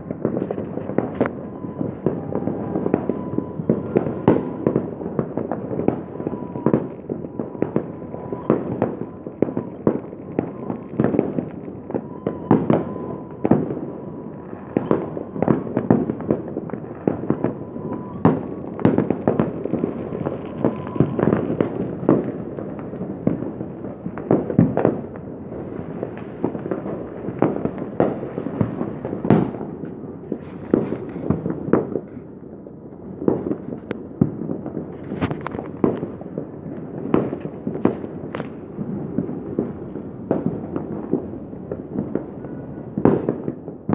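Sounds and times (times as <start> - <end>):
faint steady tone: 0.0 - 15.8
fireworks crackling and banging: 0.0 - 43.9.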